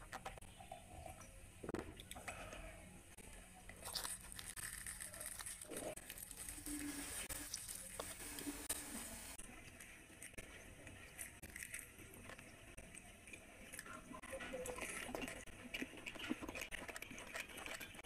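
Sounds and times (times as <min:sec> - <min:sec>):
fried bread tearing and crackling: 0:03.7 - 0:08.2, 0:09.7 - 0:13.1.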